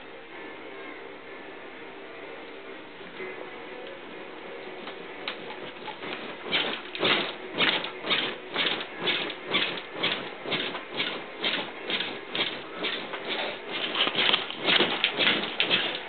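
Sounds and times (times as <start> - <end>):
wooden crib rattling and creaking: 5.3 - 16.0.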